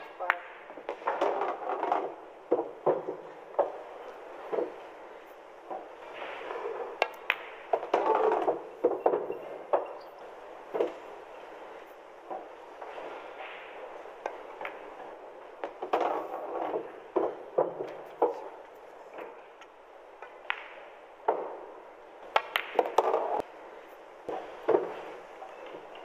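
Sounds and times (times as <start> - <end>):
pool balls clacking: 0.0 - 26.0
cue tip striking ball: 5.7 - 9.9, 20.3 - 21.7.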